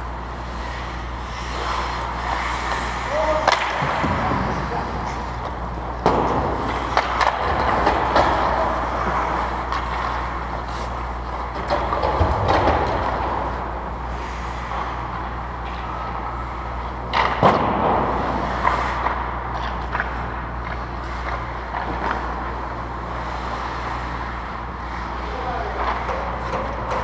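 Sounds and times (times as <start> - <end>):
hockey sticks and puck clacking: 0.0 - 27.0
skates scraping ice: 0.0 - 27.0
steady low hum: 0.0 - 27.0.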